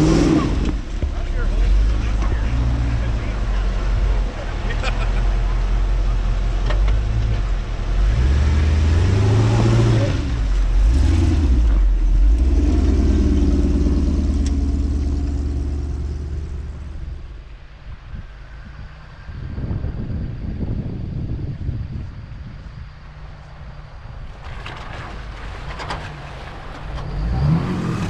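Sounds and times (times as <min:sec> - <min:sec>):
off-road vehicle engine revving: 0:00.0 - 0:17.4, 0:25.6 - 0:28.0.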